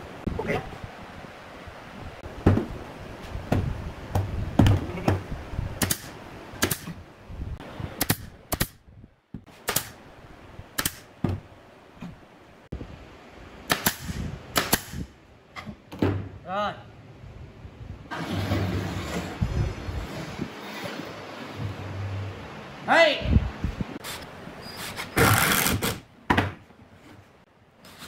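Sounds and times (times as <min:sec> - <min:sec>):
nail gun firing: 0:05.8 - 0:06.9, 0:08.0 - 0:08.8, 0:09.6 - 0:10.0, 0:10.8 - 0:11.1, 0:13.7 - 0:15.1.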